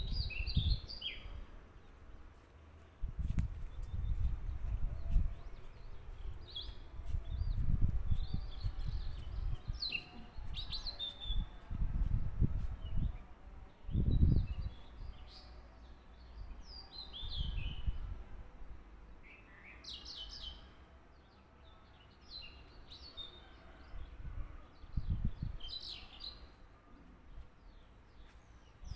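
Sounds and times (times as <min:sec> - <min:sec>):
small birds chirping: 0:00.0 - 0:11.6.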